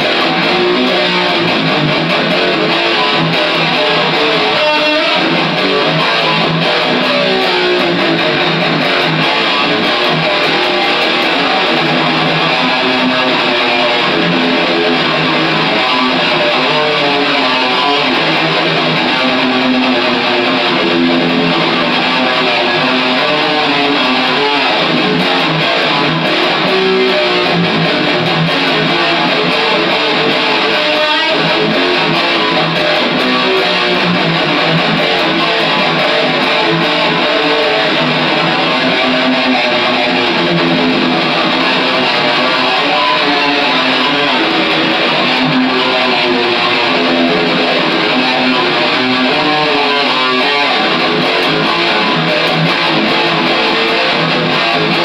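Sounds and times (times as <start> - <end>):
electric guitar picked: 0.0 - 55.0.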